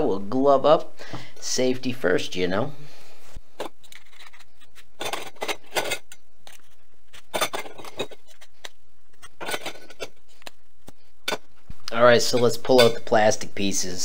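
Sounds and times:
metal tubes clinking and scraping: 0:03.6 - 0:08.5, 0:09.2 - 0:10.2, 0:11.2 - 0:11.5.

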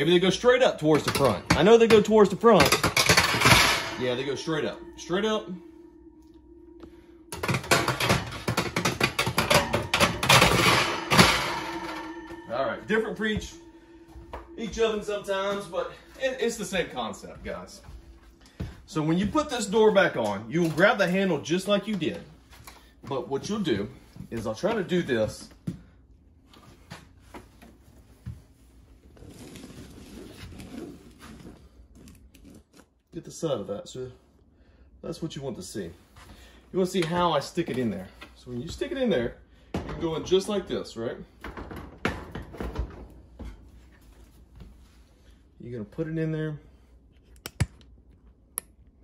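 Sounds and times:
metal oven rack rattling: 0:00.8 - 0:04.9, 0:07.3 - 0:13.7.

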